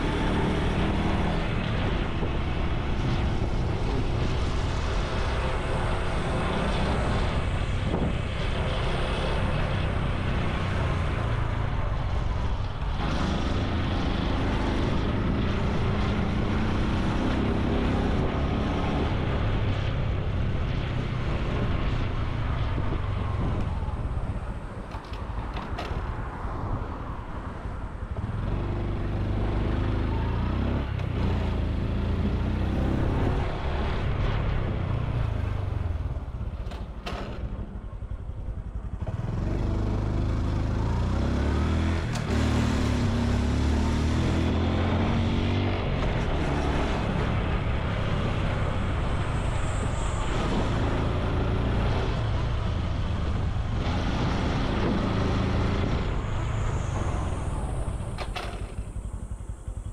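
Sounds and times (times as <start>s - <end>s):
motorcycle engine running: 52.4s - 59.9s.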